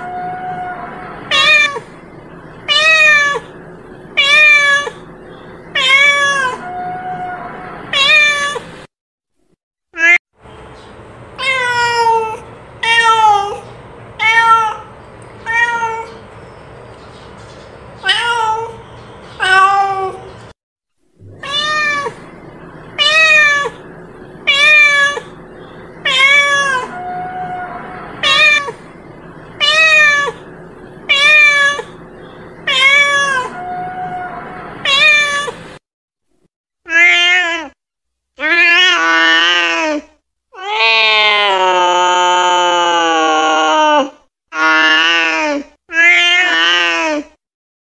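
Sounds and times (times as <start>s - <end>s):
cat meowing: 0.0s - 1.9s, 2.7s - 3.6s, 4.2s - 5.1s, 5.7s - 8.6s, 11.4s - 16.2s, 18.0s - 18.8s, 19.4s - 20.3s, 21.3s - 22.4s, 23.0s - 25.4s, 26.0s - 28.9s, 29.6s - 32.0s, 32.6s - 35.6s, 36.9s - 37.8s, 45.9s - 47.2s.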